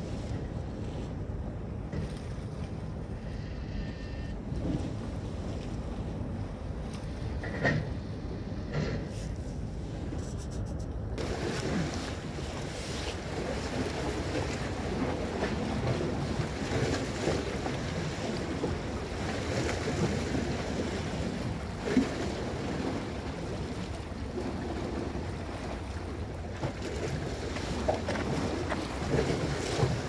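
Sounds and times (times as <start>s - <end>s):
waves splashing against rocks: 11.2s - 30.0s.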